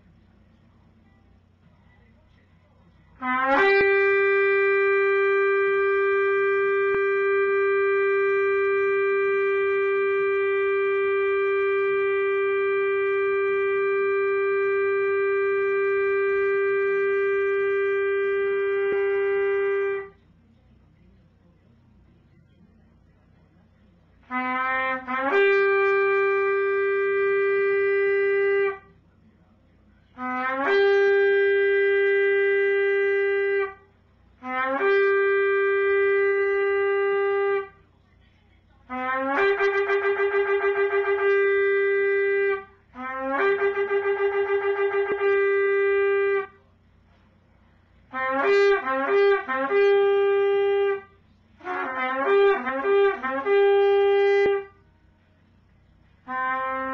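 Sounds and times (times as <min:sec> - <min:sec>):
horn blasts: 0:03.2 - 0:20.2, 0:24.2 - 0:29.0, 0:30.1 - 0:37.8, 0:38.9 - 0:46.6, 0:48.0 - 0:54.8, 0:56.1 - 0:56.9.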